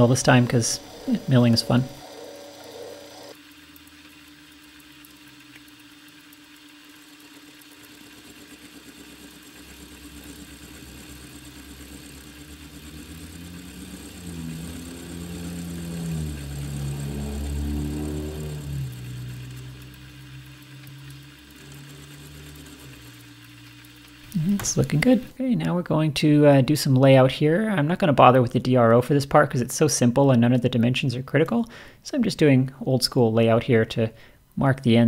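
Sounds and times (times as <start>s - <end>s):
milling machine cutting steel: 0.0s - 4.2s, 6.5s - 25.3s
steady machine whine: 0.0s - 25.4s.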